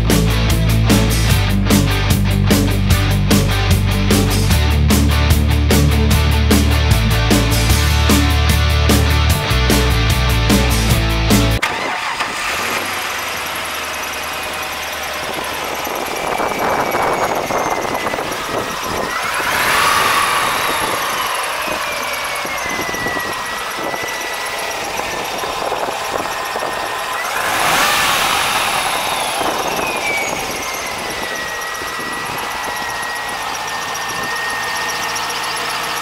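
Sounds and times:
car engine revving: 0.0s - 36.0s
high whine falling in pitch: 15.8s - 35.6s.

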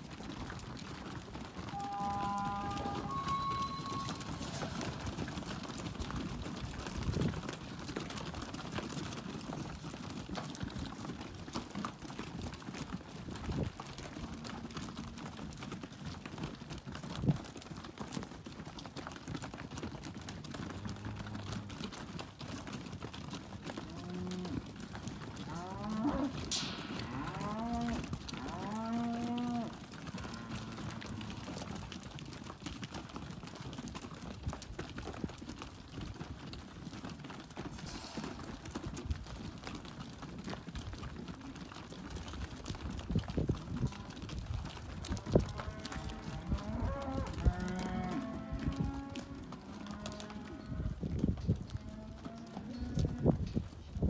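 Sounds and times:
cattle mooing: 1.7s - 5.0s, 25.4s - 31.6s, 45.5s - 50.7s.

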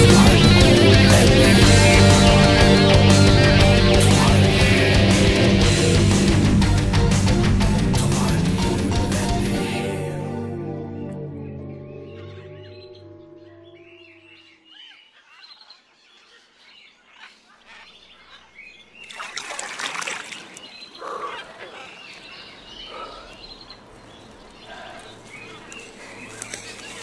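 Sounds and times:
music chord: 0.0s - 14.5s
birds chirping: 0.0s - 27.0s
hand splashing in pond water: 19.0s - 20.8s.

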